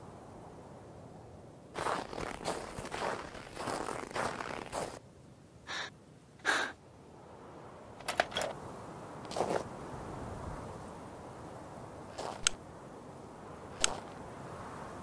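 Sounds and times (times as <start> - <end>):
cartoon footsteps crunching in snow: 1.8 - 5.0, 9.3 - 9.7, 12.1 - 12.6, 13.8 - 14.2
skis clacking onto snow: 1.8 - 5.0, 9.3 - 9.6, 12.1 - 12.6
short breathy sound: 5.7 - 6.8.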